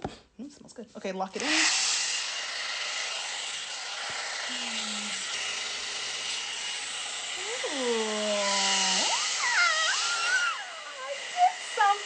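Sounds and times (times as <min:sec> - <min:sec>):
blow dryer running: 0:01.4 - 0:12.0
person's drawn-out vocal sound: 0:04.5 - 0:05.2, 0:07.4 - 0:11.6.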